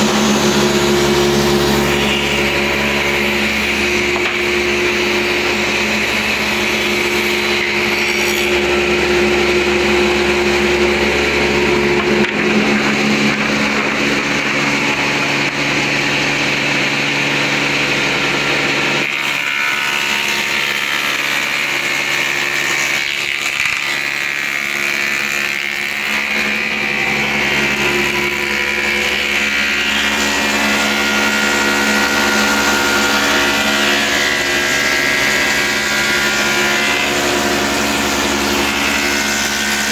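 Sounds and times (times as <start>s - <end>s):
wood planer and dust collector running: 0.0s - 39.9s.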